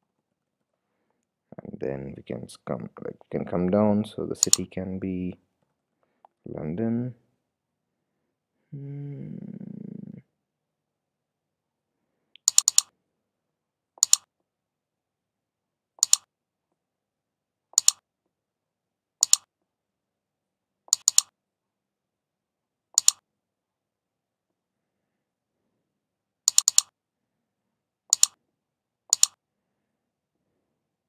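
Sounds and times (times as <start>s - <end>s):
computer mouse button clicks: 12.4s - 12.9s, 14.0s - 14.2s, 16.0s - 16.2s, 17.8s - 18.0s, 19.2s - 19.5s, 20.9s - 21.3s, 23.0s - 23.2s, 26.5s - 26.9s, 28.1s - 28.4s, 29.1s - 29.4s.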